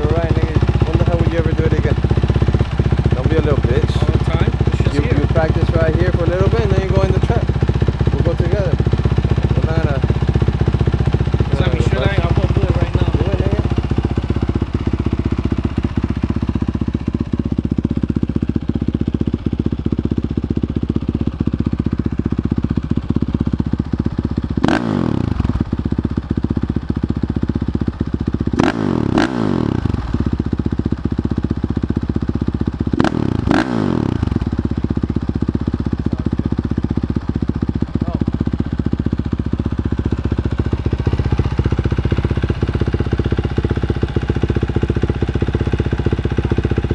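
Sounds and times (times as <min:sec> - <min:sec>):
motorcycle engine idling: 0:00.0 - 0:46.9
engine throttle revving: 0:24.6 - 0:25.5, 0:28.6 - 0:30.1, 0:32.9 - 0:34.5.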